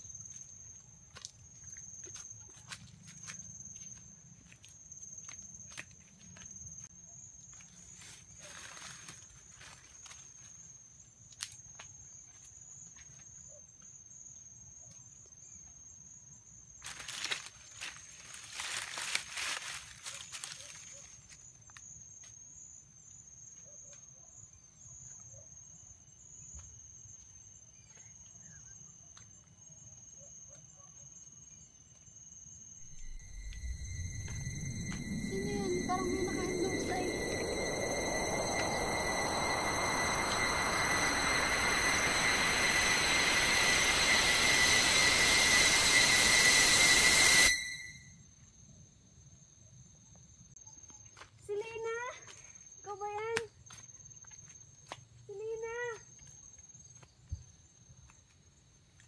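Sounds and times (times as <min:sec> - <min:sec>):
high-pitched insect drone: 0:16.8 - 0:21.4, 0:32.6 - 0:48.6.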